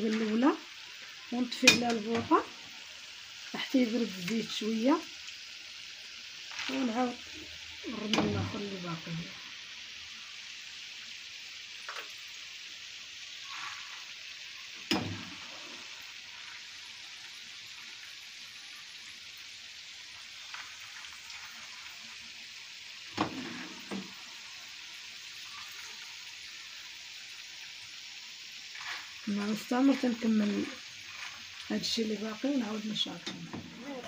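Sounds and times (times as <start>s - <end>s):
peanuts sizzling in hot oil: 0.0s - 34.0s
metal skimmer knocking on pan: 1.6s - 2.3s.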